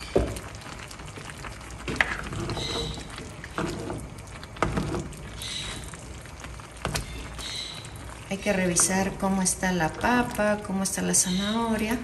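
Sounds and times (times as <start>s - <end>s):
spoon stirring wet food: 0.0s - 12.0s.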